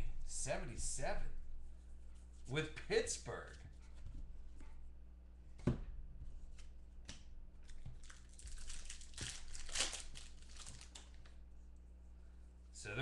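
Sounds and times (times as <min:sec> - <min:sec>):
foil wrapper tearing and crinkling: 0:07.6 - 0:11.3.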